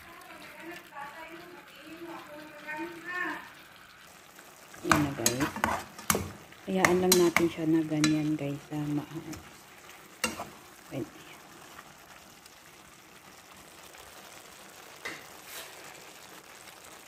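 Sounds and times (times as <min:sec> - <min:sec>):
food sizzling in a frying pan: 0:00.0 - 0:17.0
fork clinking against pan: 0:10.2 - 0:10.6.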